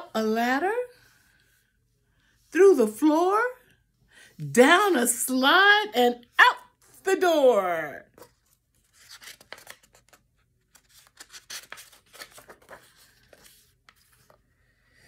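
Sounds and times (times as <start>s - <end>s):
book pages rustling and turning: 8.1s - 15.0s.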